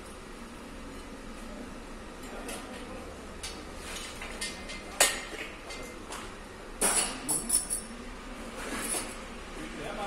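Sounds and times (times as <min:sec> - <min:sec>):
tools clanking on engine parts: 0:03.5 - 0:08.0, 0:08.6 - 0:09.2.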